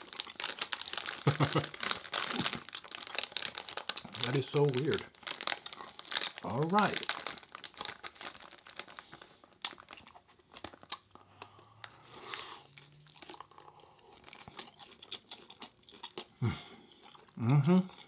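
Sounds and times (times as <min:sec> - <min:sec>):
crunching chips: 0:00.0 - 0:16.4
mouth sounds: 0:16.3 - 0:18.0.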